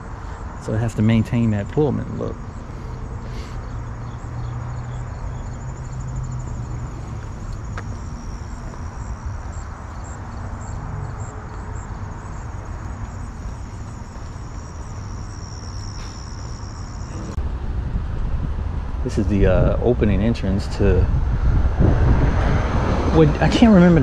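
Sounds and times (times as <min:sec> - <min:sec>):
insects trilling: 0:00.0 - 0:17.4.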